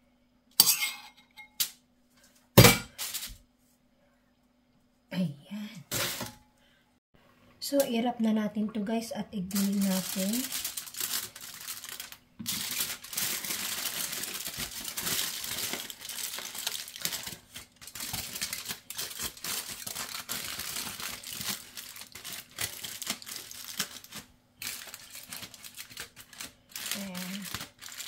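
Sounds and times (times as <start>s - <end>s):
kitchen foil crinkling: 2.9s - 3.4s, 5.9s - 6.3s, 9.5s - 28.0s.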